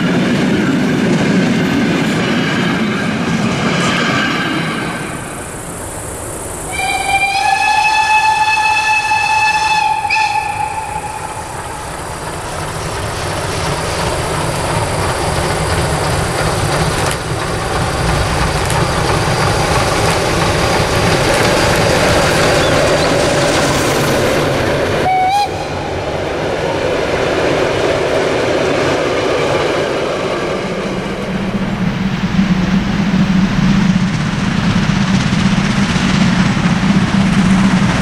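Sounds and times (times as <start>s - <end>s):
steam train running: 0.0s - 38.0s
steam locomotive whistle: 6.7s - 11.9s, 25.0s - 26.1s.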